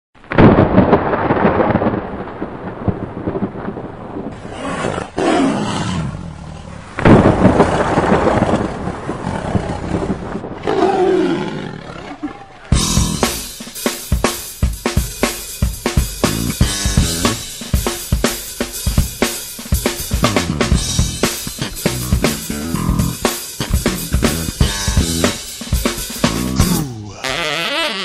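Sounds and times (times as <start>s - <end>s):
thunder rumbling: 0.2s - 13.8s, 15.7s - 19.2s, 19.8s - 27.2s
tiger roaring and growling: 4.4s - 7.0s, 7.7s - 13.3s, 20.3s - 23.2s, 26.3s - 27.4s
drum beat: 12.7s - 27.1s.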